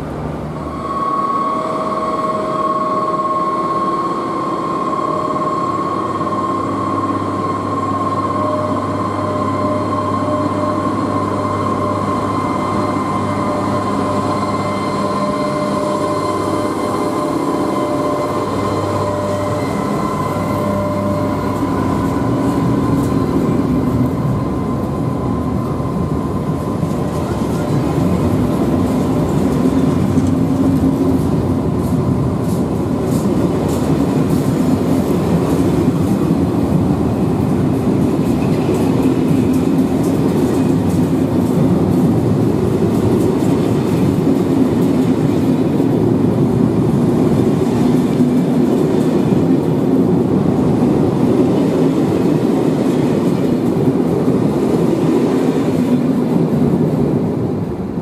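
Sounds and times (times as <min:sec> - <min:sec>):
train wheels rumbling on rails: 0:00.0 - 0:58.0
wheels clicking over rail joints: 0:13.6 - 0:58.0.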